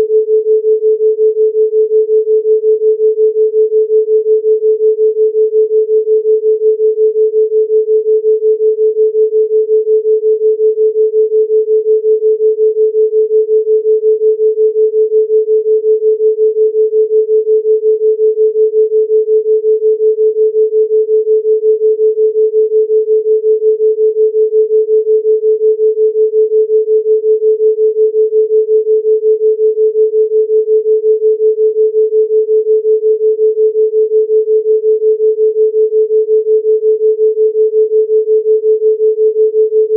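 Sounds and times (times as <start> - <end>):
pulsing sine tone: 0.0 - 39.9.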